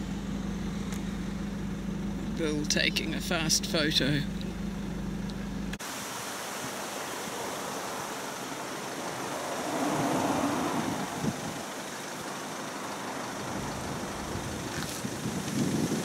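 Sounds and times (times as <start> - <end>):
road traffic: 0.0 - 16.0
vehicle passing: 7.1 - 15.4.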